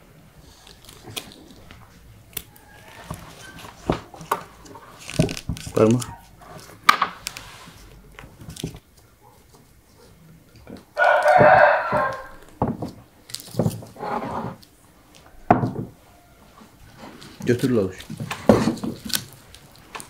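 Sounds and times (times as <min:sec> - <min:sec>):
rooster crowing: 0:02.4 - 0:03.9, 0:11.0 - 0:12.5, 0:15.2 - 0:16.7.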